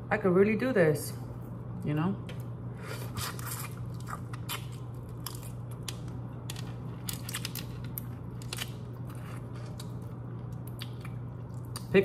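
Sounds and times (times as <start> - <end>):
steady low hum: 0.0 - 12.0
chewing crunchy shrimp: 3.0 - 11.9.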